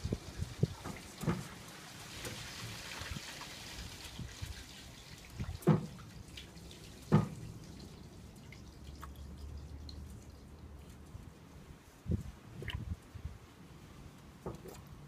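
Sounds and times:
water drips in metal basin: 0.0 - 10.8.

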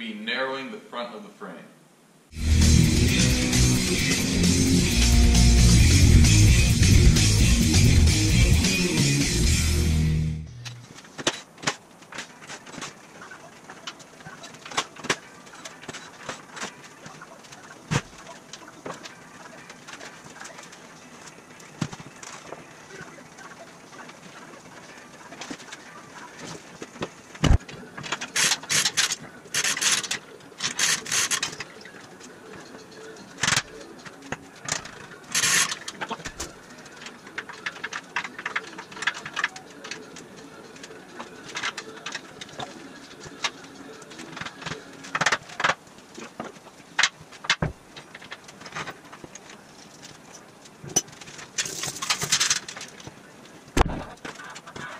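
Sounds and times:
hoist chains rattling and clanking: 51.0 - 52.9.

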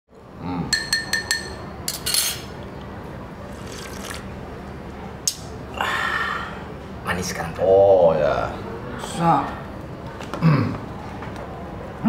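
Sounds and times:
teaspoon clinking against cup: 0.7 - 2.4
person slurping coffee: 3.5 - 4.2.

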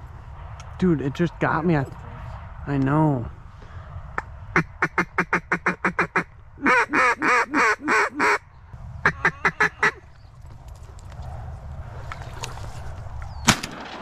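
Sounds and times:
duck call quacks: 4.6 - 8.4, 9.0 - 10.0.

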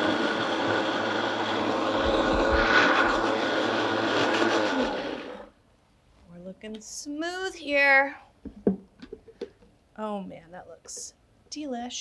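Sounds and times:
blender whirring liquid: 0.0 - 5.5.

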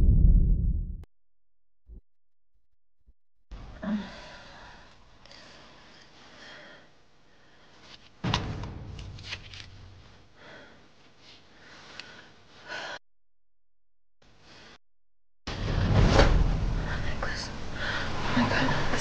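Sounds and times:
woman sighing and gasping: 3.7 - 4.9
sudden thump: 15.5 - 16.9.

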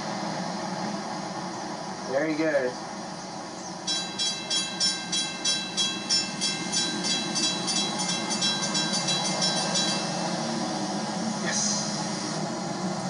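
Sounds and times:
crossing bell ringing: 3.8 - 11.2.

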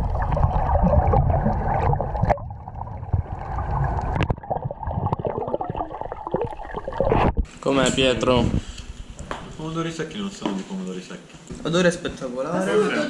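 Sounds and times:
muffled underwater rushing and bubbling: 0.0 - 7.6.

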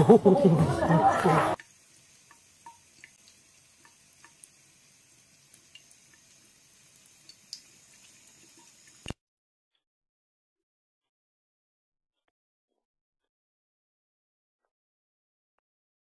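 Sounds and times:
faint tap water trickling into sink: 1.6 - 9.2
small ticks and drips: 1.6 - 9.2.

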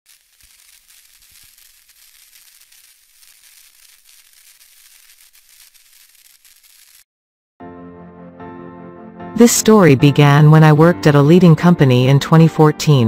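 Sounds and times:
crackling static hiss: 0.1 - 7.0.

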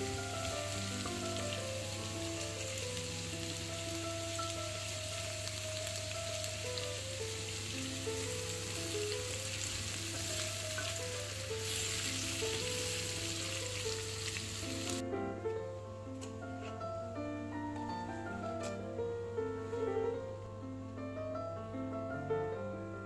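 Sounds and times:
vegetables sizzling in a pan: 0.0 - 15.0
soft background music: 0.0 - 23.0.

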